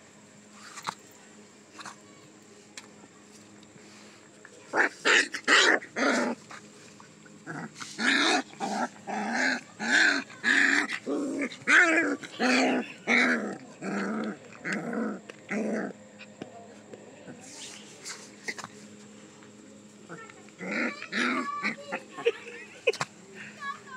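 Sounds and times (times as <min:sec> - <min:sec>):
puppies growl-yelping: 0:04.7 - 0:16.4, 0:20.1 - 0:22.6.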